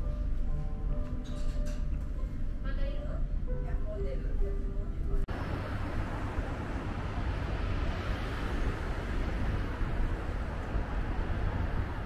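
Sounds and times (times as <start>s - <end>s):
low traffic rumble: 1.7s - 12.0s
wind buffeting microphone: 5.3s - 12.0s.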